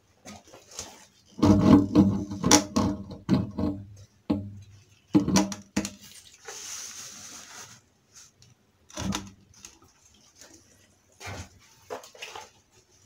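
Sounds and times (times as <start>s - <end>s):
pump parts knocking and clattering: 0.2s - 6.1s
rustling scrape: 6.0s - 8.4s.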